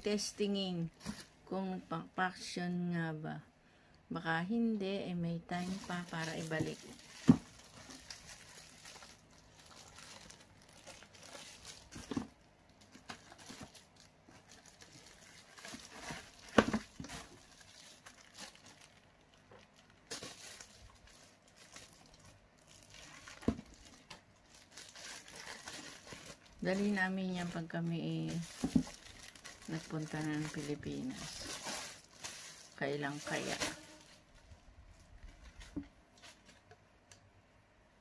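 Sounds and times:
plastic wrapping crinkling: 0:00.1 - 0:01.5, 0:05.5 - 0:36.8.

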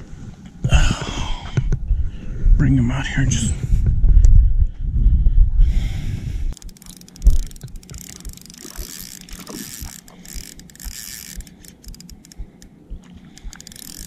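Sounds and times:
low rumble on microphone: 0:00.0 - 0:13.8
fishing reel clicking: 0:06.6 - 0:14.0.

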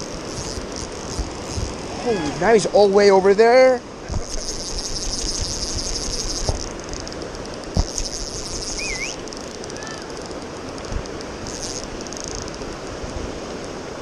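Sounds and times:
high buzzing: 0:00.0 - 0:02.4, 0:04.0 - 0:12.8
river rapids rushing: 0:00.0 - 0:14.0.

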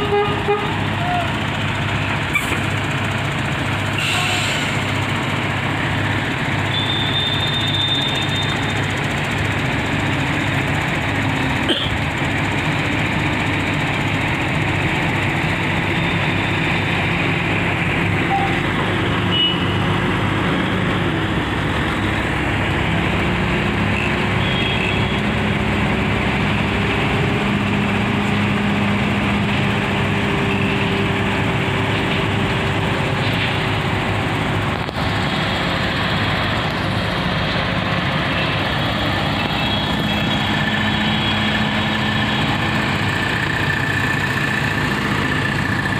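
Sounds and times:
heavy diesel engines running: 0:00.0 - 0:45.9.

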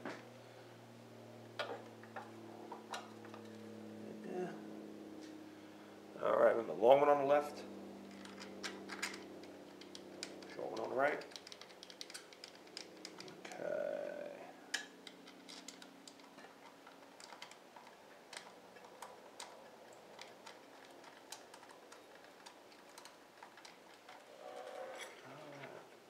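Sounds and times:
small clicks and taps: 0:08.1 - 0:13.6, 0:14.7 - 0:24.3.

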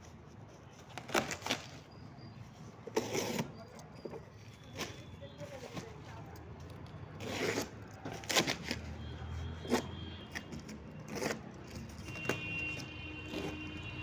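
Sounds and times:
plastic sack tearing: 0:00.9 - 0:01.8.

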